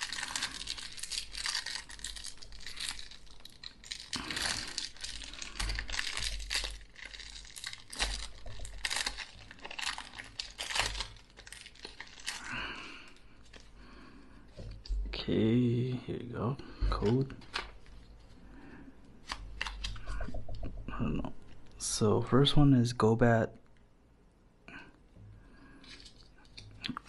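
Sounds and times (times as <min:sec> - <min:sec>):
foil wrapper crinkling and tearing: 0:00.0 - 0:13.8, 0:16.9 - 0:18.1, 0:19.2 - 0:20.2, 0:25.7 - 0:27.0
cards being handled: 0:16.9 - 0:18.0.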